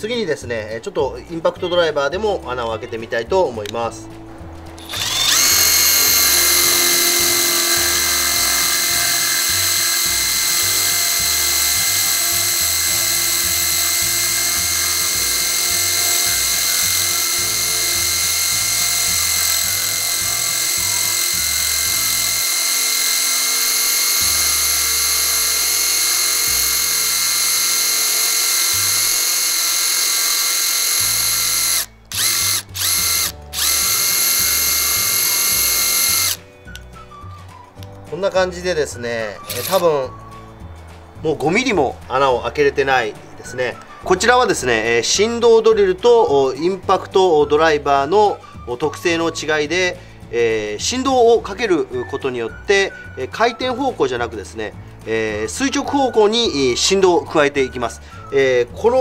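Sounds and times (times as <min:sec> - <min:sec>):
cordless drill whining: 0:04.8 - 0:37.8, 0:38.9 - 0:40.6.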